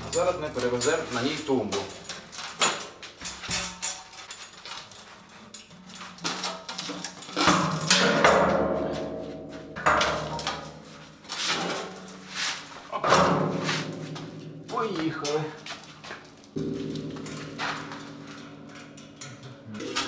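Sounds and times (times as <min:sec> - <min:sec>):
metal clanking and scraping: 0:00.0 - 0:20.0.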